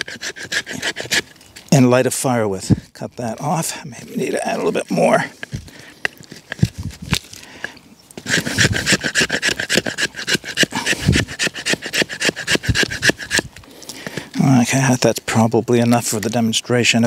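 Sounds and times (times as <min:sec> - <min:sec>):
knife scraping wood: 0:00.0 - 0:01.9, 0:04.0 - 0:14.3.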